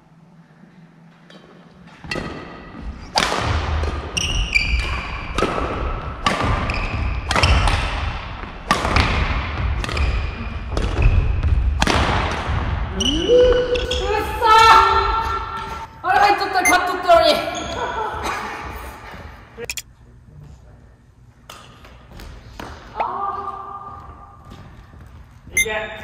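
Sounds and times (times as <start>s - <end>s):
rackets hitting shuttlecock: 2.0s - 12.8s.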